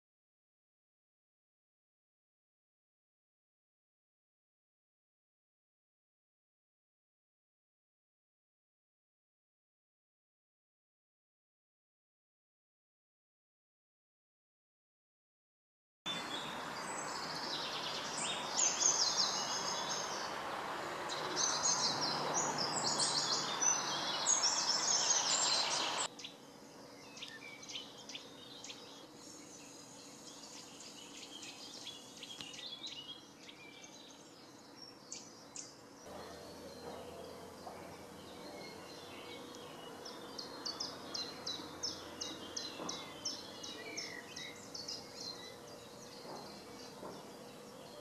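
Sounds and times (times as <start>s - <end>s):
songbirds singing and chirping: 16.1s - 48.0s.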